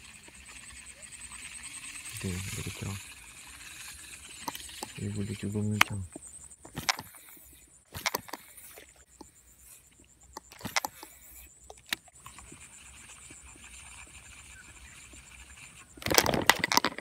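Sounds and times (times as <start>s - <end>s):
fishing reel clicks: 0.0s - 6.0s, 10.3s - 14.5s.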